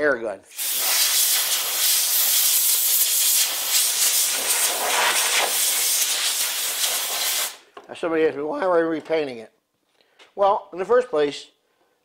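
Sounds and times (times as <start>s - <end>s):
compressed-air blow gun hissing: 0.5s - 7.6s.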